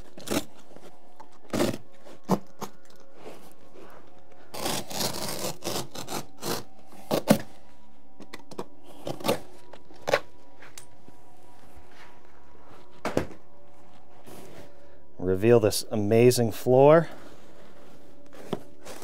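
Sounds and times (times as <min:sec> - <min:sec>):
carpet scraping and ripping: 0:00.0 - 0:07.5.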